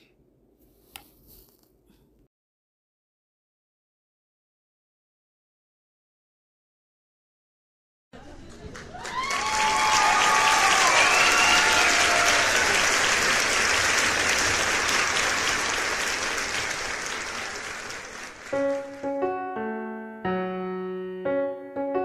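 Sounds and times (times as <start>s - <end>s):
applause: 8.2s - 19.2s
people cheering: 8.5s - 19.0s
soft piano music: 18.5s - 22.0s.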